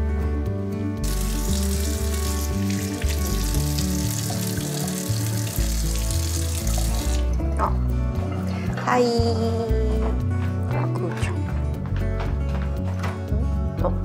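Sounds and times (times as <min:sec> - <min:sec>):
soft background music: 0:00.0 - 0:14.0
water running from tap into sink: 0:01.0 - 0:07.5
hands washing: 0:01.0 - 0:08.9.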